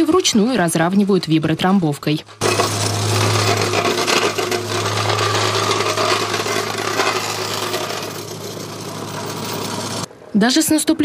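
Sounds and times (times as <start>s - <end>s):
plate compactor running: 2.4s - 10.1s.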